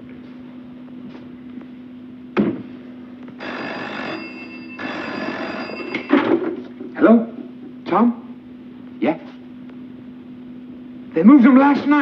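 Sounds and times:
telephone bell ringing: 3.4 - 6.5.

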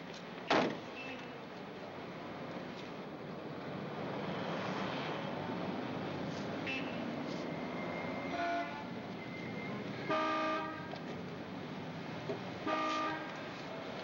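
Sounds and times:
street traffic: 0.0 - 14.0
car horn tooting: 10.1 - 10.9, 12.6 - 13.4.

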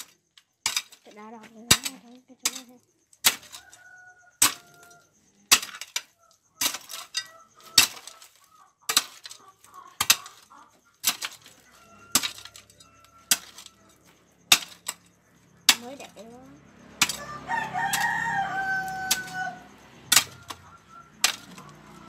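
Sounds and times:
hoe chopping into stony dirt: 1.7 - 3.6, 5.5 - 6.0, 20.1 - 21.8.

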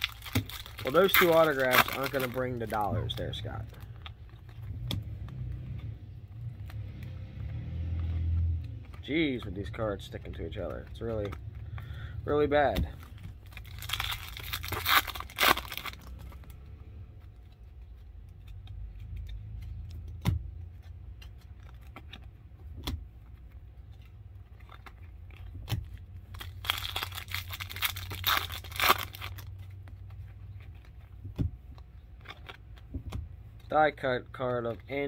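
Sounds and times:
foil wrapper crinkling and tearing: 0.0 - 4.6, 13.0 - 16.6, 24.1 - 31.0.

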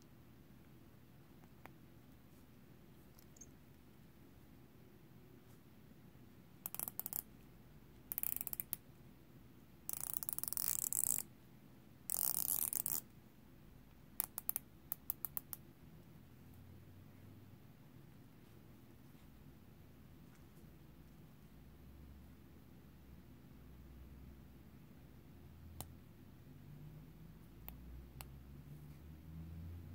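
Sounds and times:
watch bezel ratcheting clicks: 6.6 - 7.2, 8.1 - 8.8, 9.9 - 11.2, 12.1 - 13.0.

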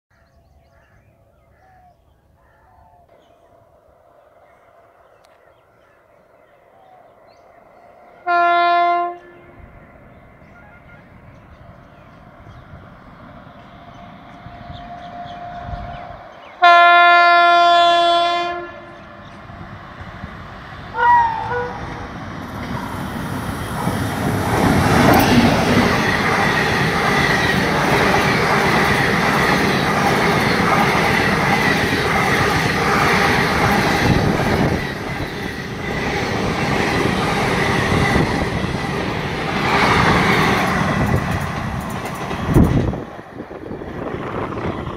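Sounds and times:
train horn: 8.2 - 9.7, 10.5 - 11.2, 14.6 - 19.2, 20.9 - 22.0
train wheels clattering over rails: 22.3 - 44.9.

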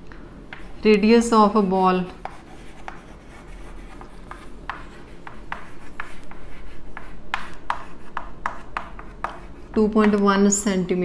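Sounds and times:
chalk scratching on blackboard: 1.6 - 10.1.

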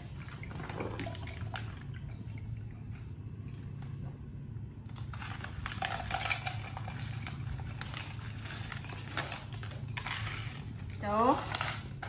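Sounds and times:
steady low hum: 0.0 - 12.0
plastic cups and bottle handled: 4.9 - 12.0.

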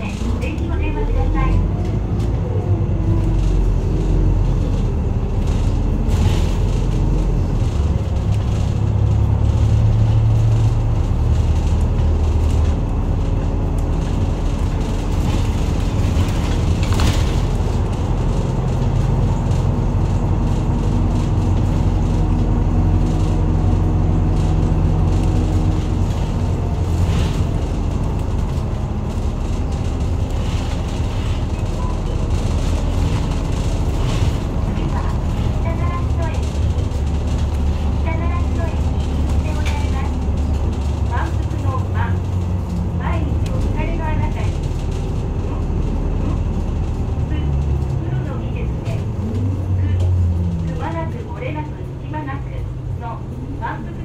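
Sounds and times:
bus engine rumble: 0.0 - 54.0.

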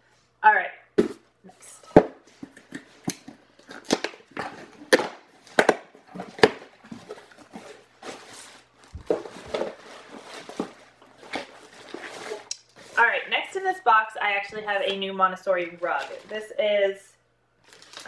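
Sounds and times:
box being handled and opened: 1.0 - 13.0, 15.8 - 16.4.

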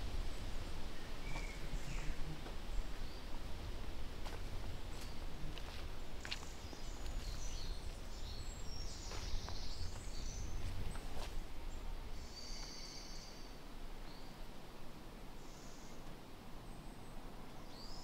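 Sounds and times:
steady low rumble: 0.0 - 12.2
songbirds singing: 0.0 - 14.6, 15.4 - 18.0.

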